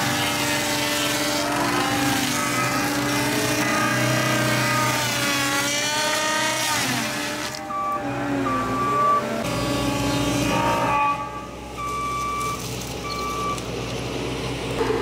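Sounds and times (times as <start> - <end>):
saw blade cutting stump: 0.0 - 7.7
diesel engine running hard: 0.0 - 15.0.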